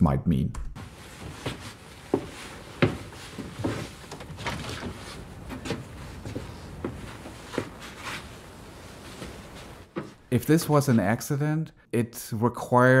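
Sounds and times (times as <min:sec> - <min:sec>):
wood knocks and creaks: 0:00.8 - 0:10.3.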